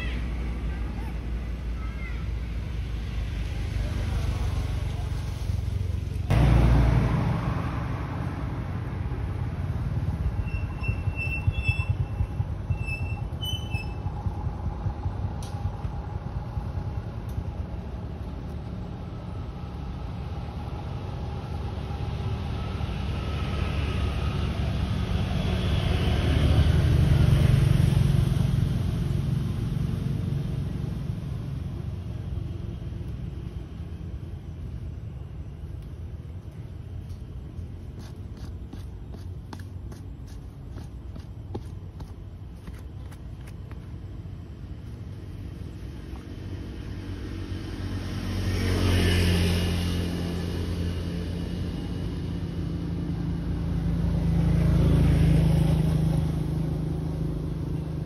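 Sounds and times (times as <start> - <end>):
motor vehicle passing: 0.0 - 58.0.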